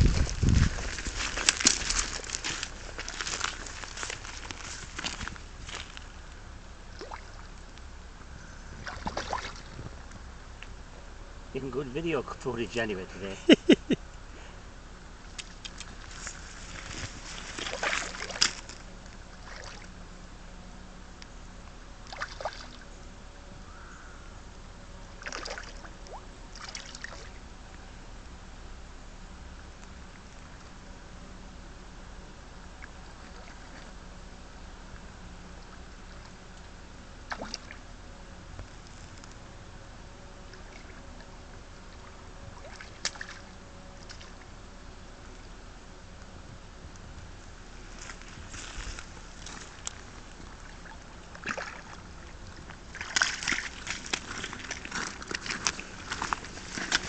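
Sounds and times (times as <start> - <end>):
river water washing: 0.0 - 6.1, 8.8 - 9.8, 15.4 - 19.9, 25.2 - 27.4, 41.9 - 44.5, 49.0 - 57.0
faint river flow: 0.0 - 57.0
fish splashing at surface: 52.9 - 57.0.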